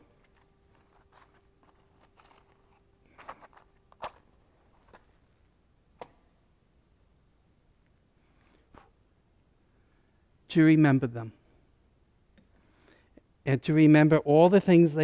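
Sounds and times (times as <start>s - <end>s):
match scraping on box: 0.3s - 4.2s.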